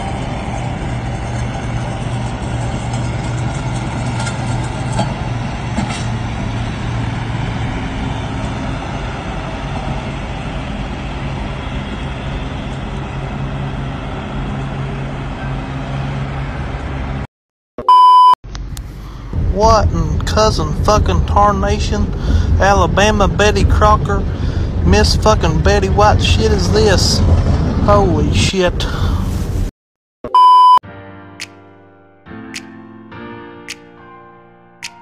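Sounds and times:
diesel truck engine running: 0.0 - 17.2, 18.5 - 29.5
test-tone beep: 17.8 - 18.4, 30.3 - 30.8.

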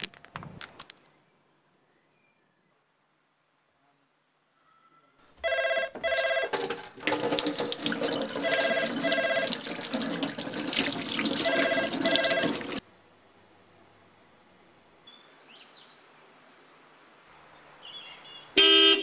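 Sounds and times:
telephone ringing: 5.4 - 6.8, 8.1 - 9.7, 11.3 - 12.8
tap running into sink: 6.5 - 12.8.

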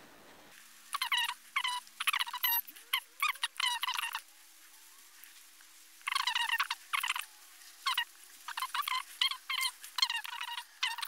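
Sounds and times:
faint steady hum: 0.0 - 11.0
small animal chirping: 0.9 - 4.3, 6.0 - 11.0.

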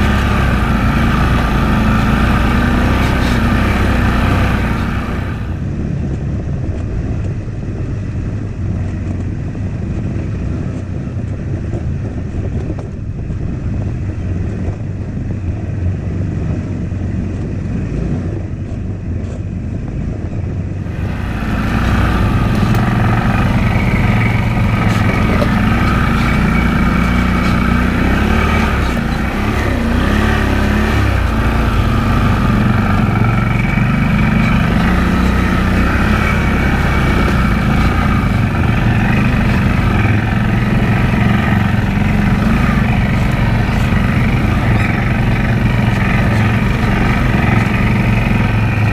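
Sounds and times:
atv engine running: 0.0 - 48.9
tyre and chassis noise: 0.0 - 48.9.

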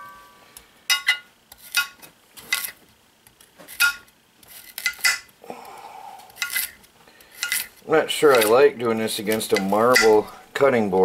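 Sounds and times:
faint steady tone: 0.0 - 1.3.

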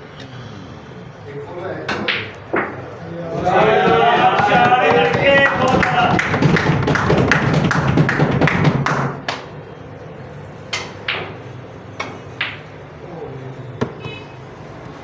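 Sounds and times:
snooker balls clicking: 3.4 - 9.5
rapid sharp taps: 3.9 - 9.2.

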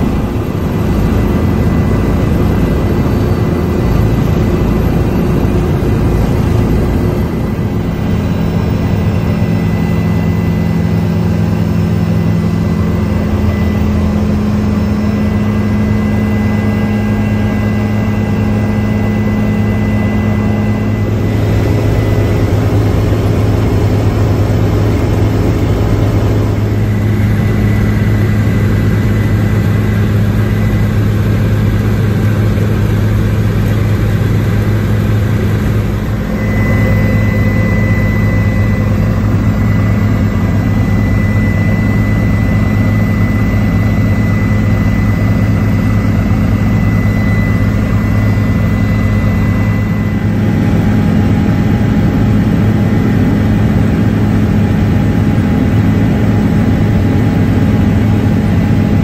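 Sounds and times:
helicopter engine and rotor drone: 0.0 - 59.0
thin high whine: 0.0 - 59.0.

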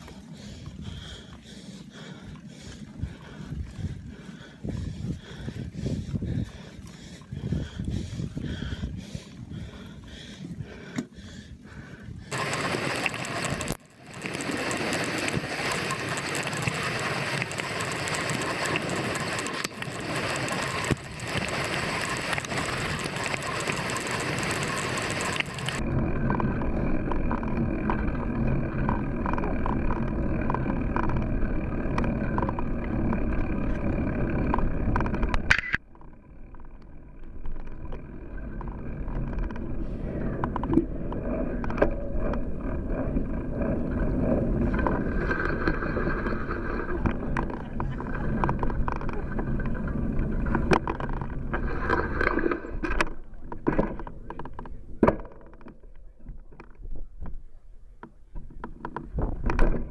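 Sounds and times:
bike tyres on tarmac: 0.0 - 59.9
wind rushing on microphone: 3.0 - 6.7, 7.3 - 10.7.

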